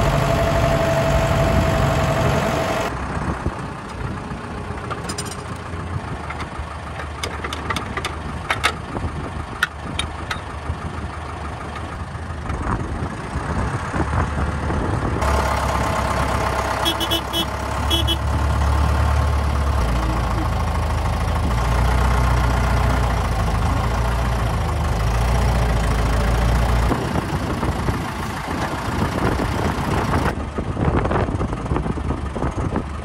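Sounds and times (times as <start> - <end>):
tractor diesel engine running: 0.0 - 33.0
sharp clicks and clanks: 4.8 - 8.8.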